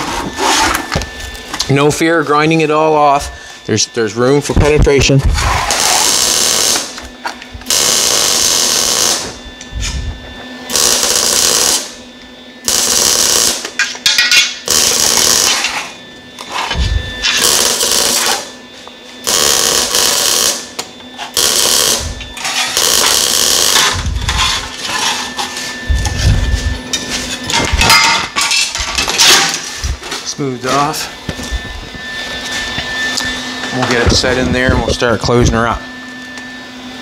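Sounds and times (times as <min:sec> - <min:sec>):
steady hum: 0:00.0 - 0:37.0
angle grinder grinding steel: 0:21.2 - 0:26.2.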